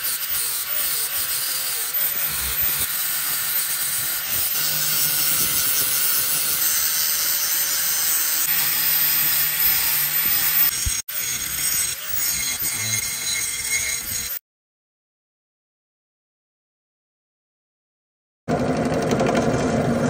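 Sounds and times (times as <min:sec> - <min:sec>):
angle grinder grinding metal: 0:00.0 - 0:14.4.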